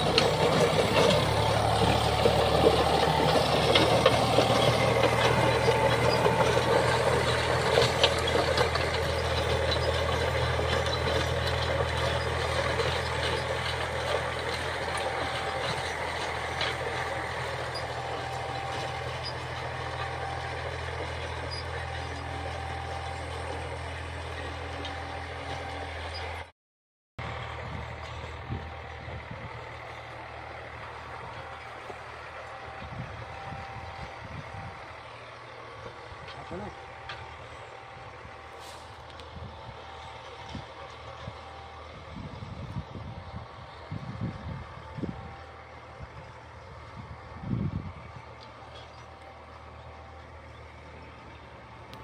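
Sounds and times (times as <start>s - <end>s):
rotavator churning soil: 0.0s - 26.0s, 27.2s - 42.4s
tractor diesel engine running: 0.0s - 26.5s, 27.2s - 52.0s.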